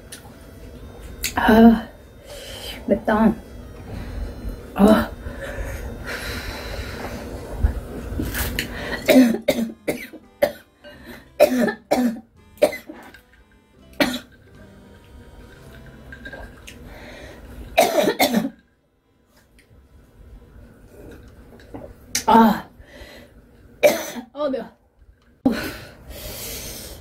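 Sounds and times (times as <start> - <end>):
woman clearing throat: 9.0 - 10.6, 11.4 - 13.0
woman coughing: 9.0 - 10.7, 11.4 - 13.0, 14.0 - 14.3, 17.8 - 18.6, 23.8 - 24.3.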